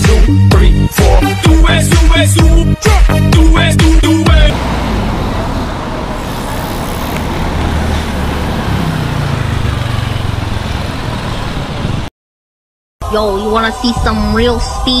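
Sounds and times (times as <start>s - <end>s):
street traffic: 3.6s - 12.1s
motor scooter engine passing: 4.4s - 12.1s.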